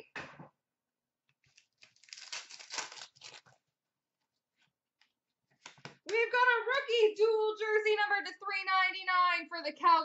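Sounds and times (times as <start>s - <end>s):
cards and foil wrappers rustling: 1.4s - 3.7s.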